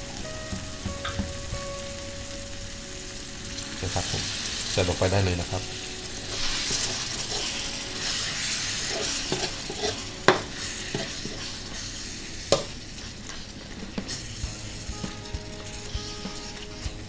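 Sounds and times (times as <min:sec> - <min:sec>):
food sizzling in a wok: 0:00.0 - 0:17.0
metal ladle scraping a wok: 0:05.6 - 0:17.0.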